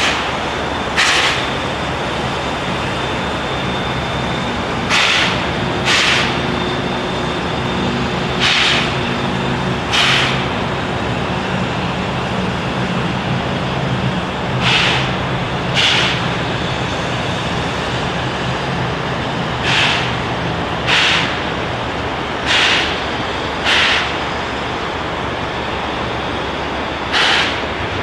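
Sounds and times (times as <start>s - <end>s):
steam locomotive exhaust chuffs: 0.0s - 28.0s.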